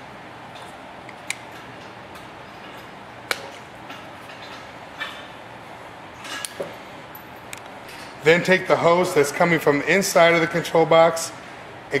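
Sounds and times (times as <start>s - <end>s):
steady low hiss: 6.8s - 12.0s.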